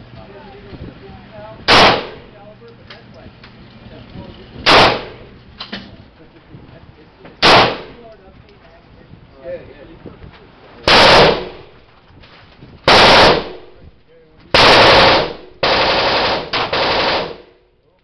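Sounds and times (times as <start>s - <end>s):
handgun shots with echo: 1.7s - 2.2s, 4.7s - 5.8s.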